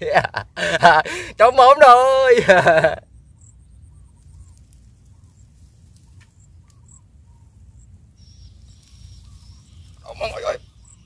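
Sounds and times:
steady low rumble: 2.6 - 11.0
faint bird chirps: 3.0 - 11.0.

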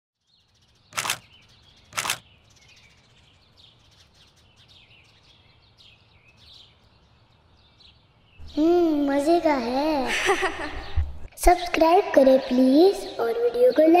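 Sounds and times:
birds chirping: 0.2 - 14.0.

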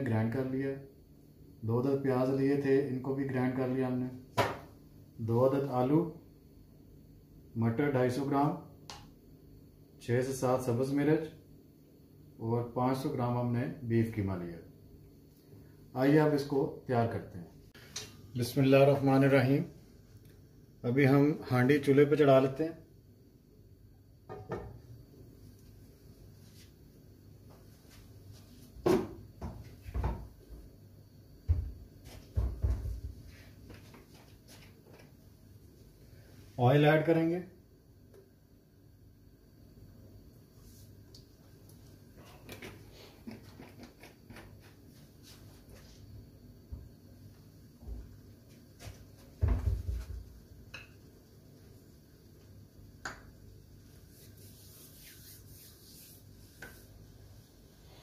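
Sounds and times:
kitchen knocks and thuds: 4.4 - 4.7, 24.3 - 24.8, 28.8 - 30.3, 31.4 - 33.2, 49.4 - 50.3.

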